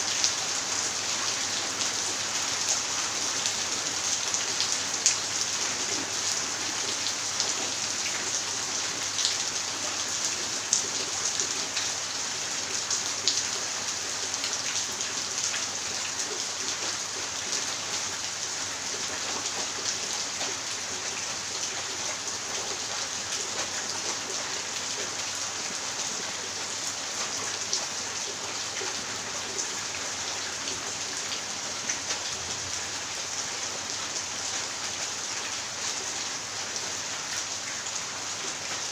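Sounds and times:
rain on concrete and plants: 0.0 - 38.9.

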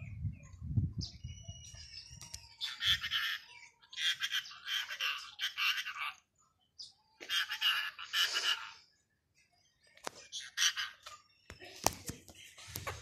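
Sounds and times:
parakeet screeching: 2.6 - 6.2, 7.3 - 8.8.

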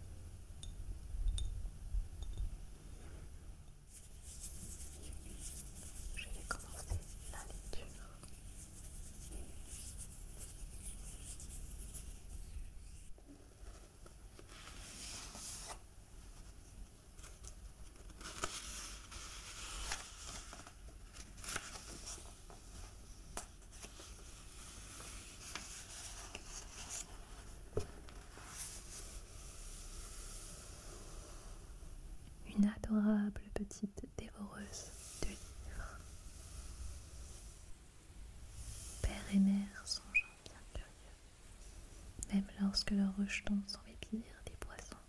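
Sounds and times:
fingers rubbing book cover: 3.9 - 7.7, 8.4 - 13.1
pages turning: 17.2 - 22.6.

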